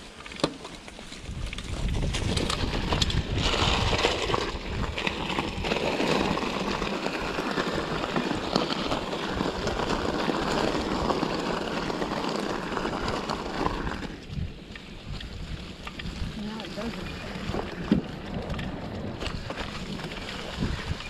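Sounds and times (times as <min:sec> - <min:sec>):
bike rattling over rough ground: 0:00.0 - 0:21.0
bike tyres crunching leaves and gravel: 0:00.0 - 0:21.0.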